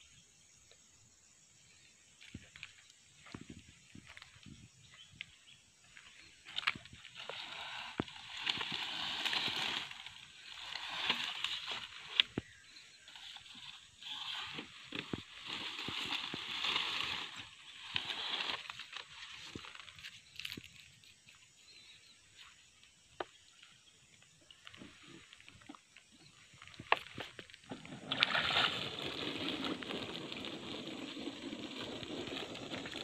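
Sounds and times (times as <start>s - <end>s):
dry palm fronds rustling: 5.9s - 20.9s, 26.6s - 33.0s.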